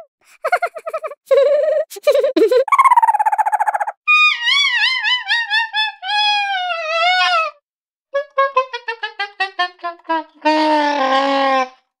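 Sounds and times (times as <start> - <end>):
high-pitched cartoon laugh: 0.0 - 4.0.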